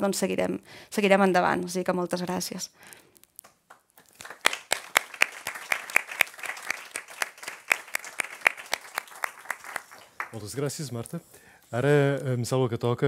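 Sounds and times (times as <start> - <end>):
audience applause: 4.0 - 10.5.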